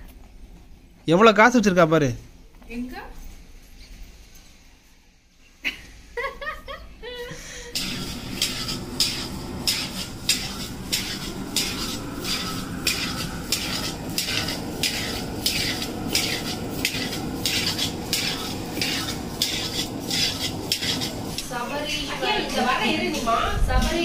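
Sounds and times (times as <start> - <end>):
steady low rush: 7.7 - 24.0
ladle scraping metal pan: 7.8 - 22.0.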